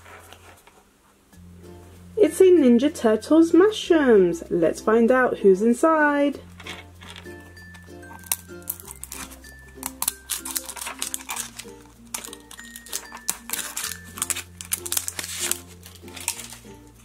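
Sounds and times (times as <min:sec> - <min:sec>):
background music: 0:01.3 - 0:17.0
plastic crinkling: 0:06.5 - 0:17.0.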